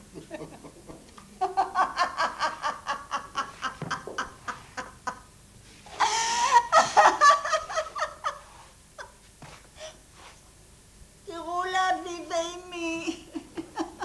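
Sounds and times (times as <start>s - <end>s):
elderly woman cackling laughter: 0.1s - 5.3s, 5.9s - 9.2s, 13.1s - 14.0s.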